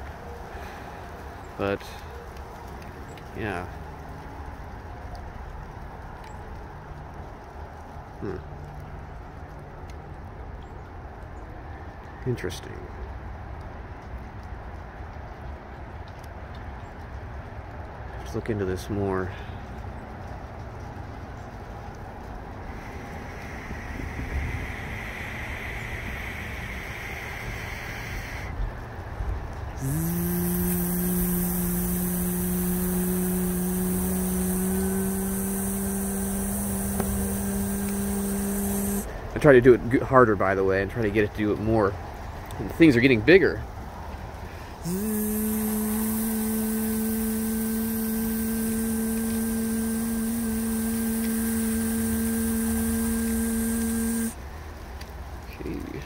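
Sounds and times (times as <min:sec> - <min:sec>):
motor hum: 0:00.0 - 0:01.8, 0:21.6 - 0:28.8, 0:29.6 - 0:39.3, 0:44.5 - 0:54.8
steady hiss: 0:00.0 - 0:08.8, 0:18.1 - 0:56.0.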